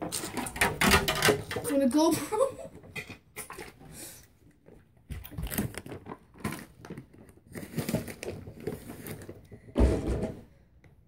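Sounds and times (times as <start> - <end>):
plastic bag crinkling: 5.2 - 9.5.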